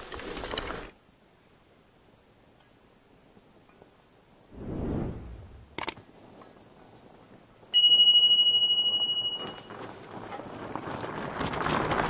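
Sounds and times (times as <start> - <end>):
bright bell ring: 7.8 - 9.6
bike tyres crunching over gravel: 9.5 - 12.0.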